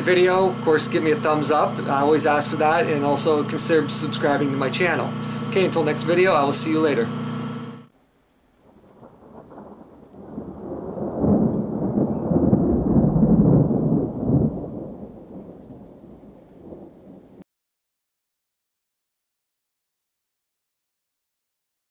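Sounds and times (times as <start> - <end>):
low rumbling: 0.0 - 7.9.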